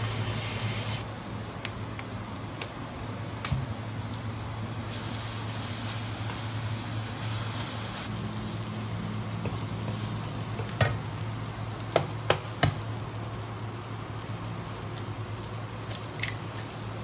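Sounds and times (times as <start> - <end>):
food sizzling in frying pan: 0.0 - 1.0, 4.0 - 17.0.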